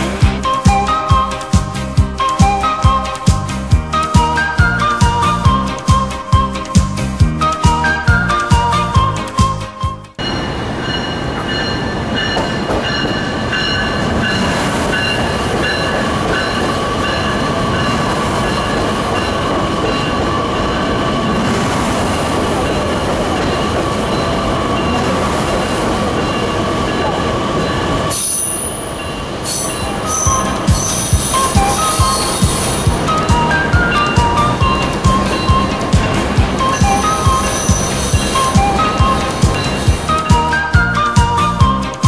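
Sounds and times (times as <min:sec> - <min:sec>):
train wheels rumbling: 0:00.0 - 0:42.0
high-pitched tones: 0:22.8 - 0:42.0.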